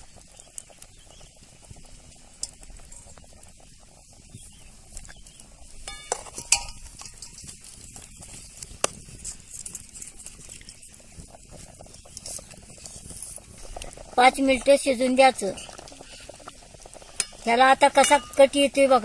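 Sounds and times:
curry bubbling in a pot: 0:00.0 - 0:19.0
ladle knocking against pot: 0:05.9 - 0:07.4.

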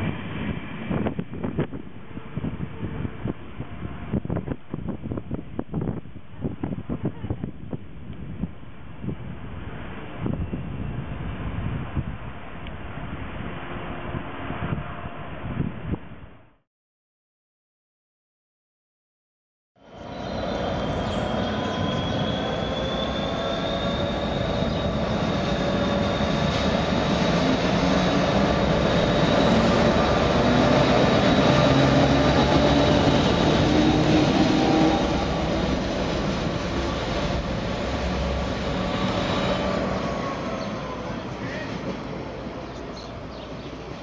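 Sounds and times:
high whining tones: 0:19.8 - 0:42.6
diesel locomotive engine running: 0:19.8 - 0:44.0
wheels rumbling on rails: 0:19.8 - 0:44.0.

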